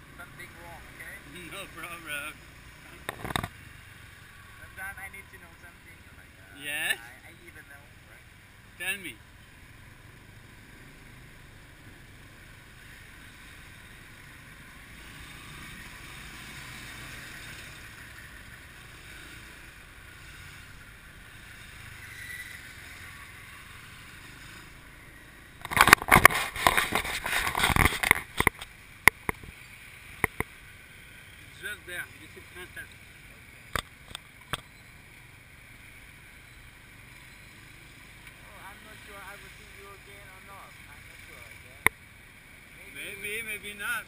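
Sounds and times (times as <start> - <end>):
road and wind noise: 0.0 - 44.0
microphone crackling and rustling: 25.6 - 29.6
sharp clicks: 27.7 - 30.6.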